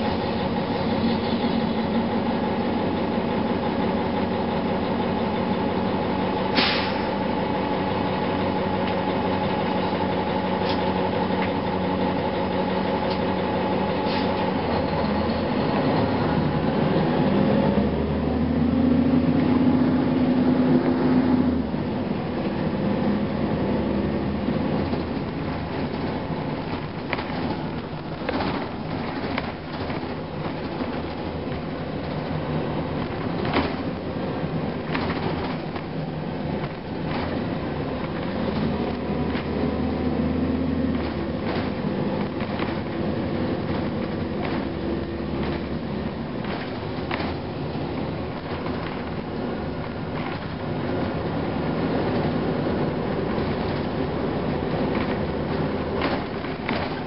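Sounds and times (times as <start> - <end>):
bus diesel engine: 0.0 - 57.0
sharp rattles and knocks: 24.7 - 39.7, 40.9 - 51.2, 53.2 - 57.0.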